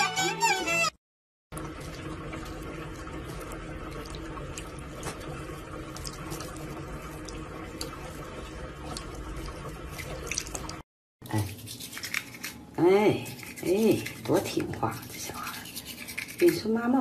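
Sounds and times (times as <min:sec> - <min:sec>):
tap water splashing into sink: 0:01.5 - 0:10.8
small drips: 0:01.5 - 0:12.4.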